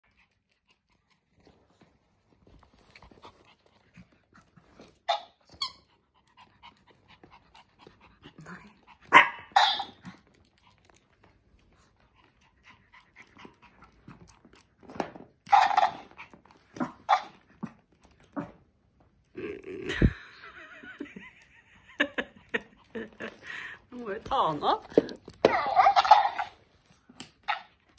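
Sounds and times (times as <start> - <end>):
small dog barking: 9.1 - 10.0.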